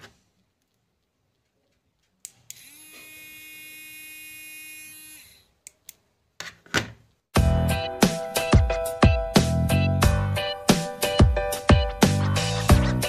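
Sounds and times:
small motor whirring: 0:02.5 - 0:05.5.

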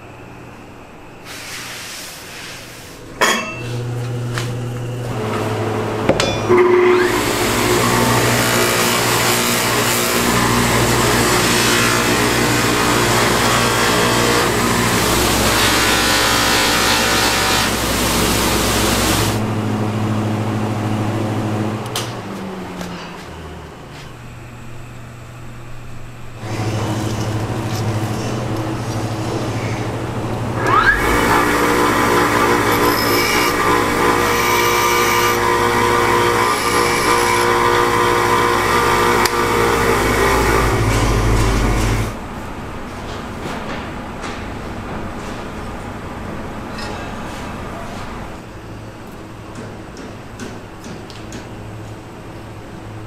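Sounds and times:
electric grinder motor humming: 0:06.8 - 0:19.4, 0:30.6 - 0:42.2
blade grinding on wheel: 0:30.6 - 0:42.2.

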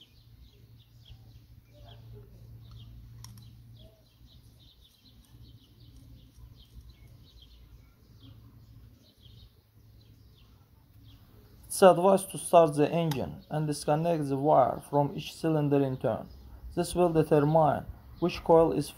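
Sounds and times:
faint small bird chirps: 0:00.0 - 0:11.7.

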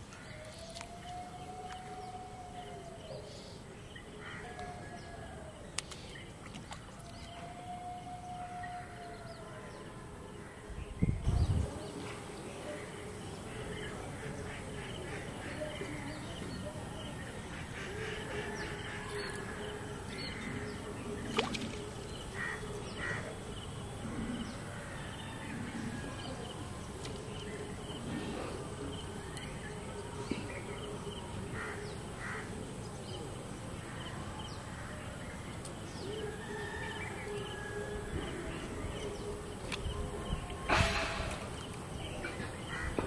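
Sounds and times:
crows cawing: 0:31.6 - 0:32.5, 0:42.7 - 0:43.0.

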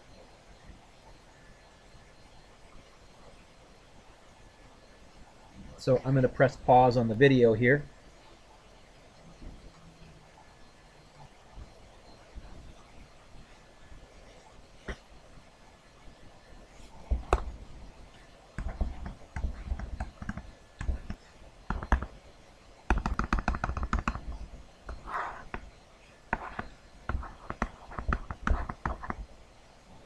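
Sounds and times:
stylus tapping on tablet screen: 0:17.0 - 0:17.6, 0:18.6 - 0:22.1, 0:22.9 - 0:25.7, 0:26.3 - 0:29.2.

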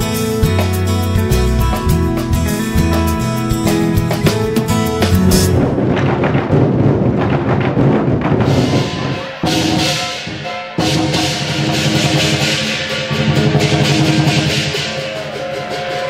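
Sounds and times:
instrumental music: 0:00.0 - 0:06.0
large drums beaten: 0:00.0 - 0:16.0.

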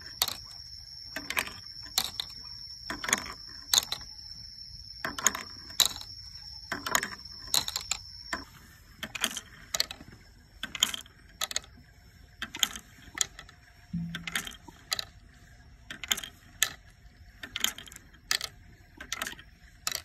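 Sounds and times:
water drops ticking on bamboo: 0:12.4 - 0:15.2.

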